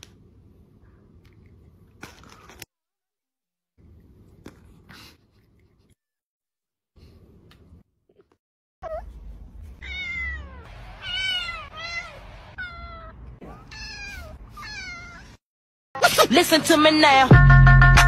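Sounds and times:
kitten meowing: 9.8 - 15.3.

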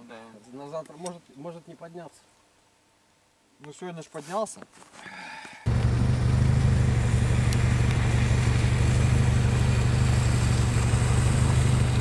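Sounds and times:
low engine hum: 5.7 - 12.0.

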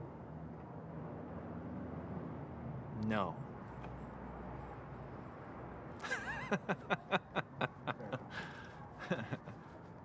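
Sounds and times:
man laughing: 6.0 - 9.6.

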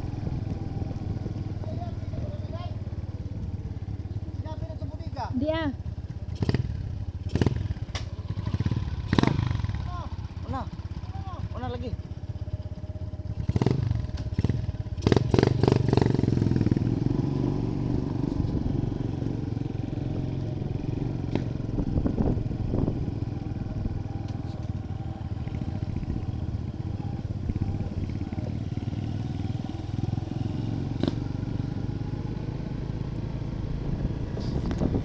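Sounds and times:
small motorcycle engine running: 0.0 - 35.0
clatter of riding on gravel: 24.2 - 24.8.

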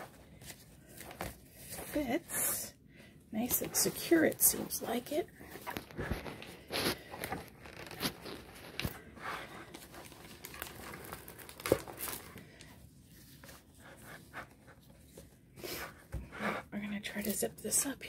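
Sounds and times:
plastic crinkling and rustling: 3.4 - 15.3.

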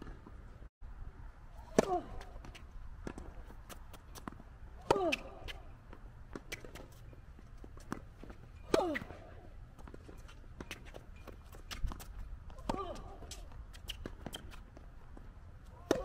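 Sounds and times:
racket striking tennis ball: 1.7 - 5.7.

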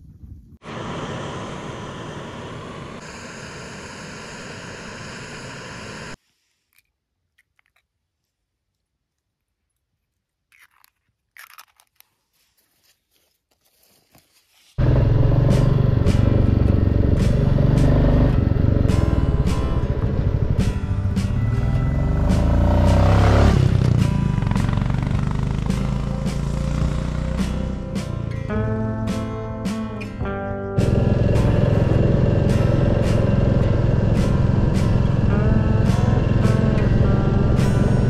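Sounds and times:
motorcycle engine running: 14.8 - 28.3, 30.7 - 38.0.

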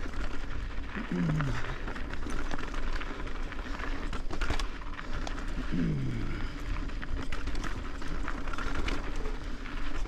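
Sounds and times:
bike rattling and clicking: 0.0 - 10.0
bike tyres rumbling over dirt: 0.0 - 10.0.

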